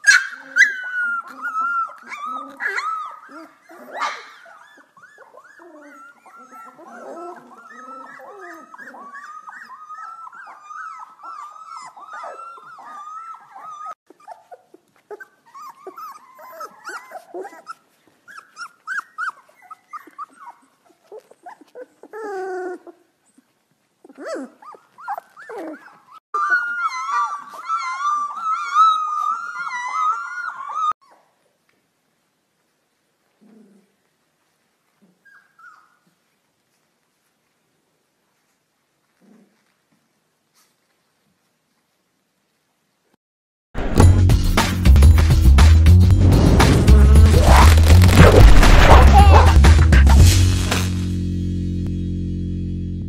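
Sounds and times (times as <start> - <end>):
puppies howling and whimpering: 0.0 - 23.0, 24.1 - 31.2.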